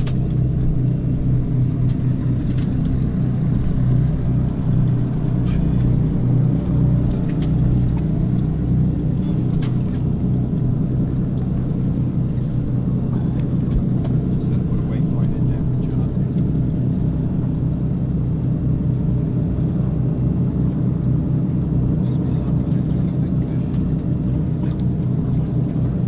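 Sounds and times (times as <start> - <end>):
outboard motors idling: 0.0 - 26.0.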